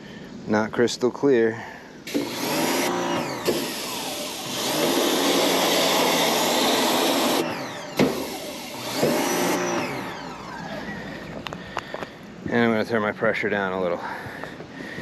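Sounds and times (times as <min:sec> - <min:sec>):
pressure washer spraying water: 0:02.1 - 0:10.1.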